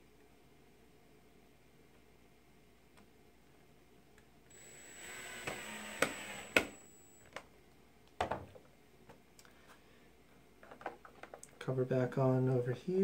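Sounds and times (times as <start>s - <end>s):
drill whining: 4.5s - 7.2s.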